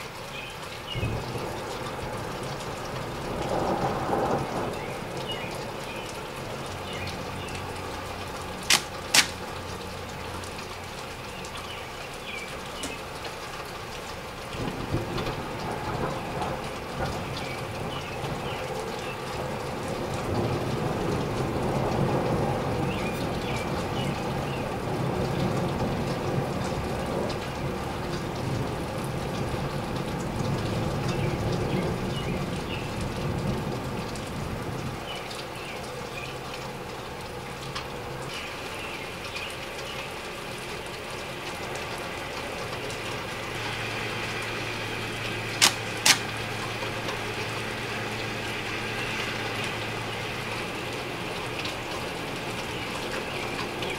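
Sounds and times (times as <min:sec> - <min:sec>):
rain: 0:00.0 - 0:53.9
muffled rolling thunder: 0:01.0 - 0:05.7, 0:14.6 - 0:35.0
sharp clicks: 0:08.7 - 0:09.4, 0:45.6 - 0:46.3.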